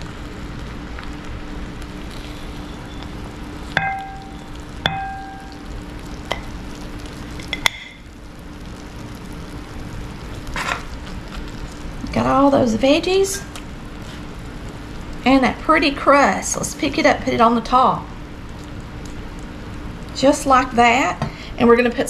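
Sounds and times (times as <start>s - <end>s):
low hum: 0.0s - 12.9s.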